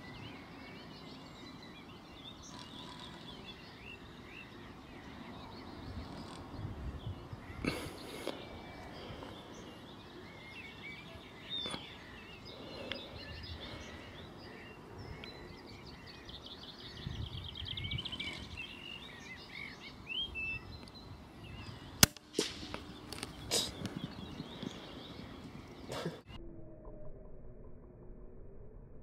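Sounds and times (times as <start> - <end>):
small birds chirping: 0.0 - 26.4
rifle shot crack: 22.0 - 22.9.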